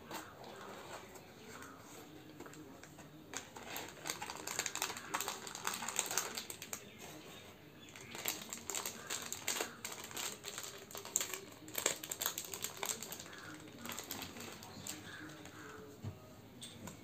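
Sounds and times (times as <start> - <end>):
plastic pouch crinkling: 3.3 - 7.0, 7.8 - 15.8.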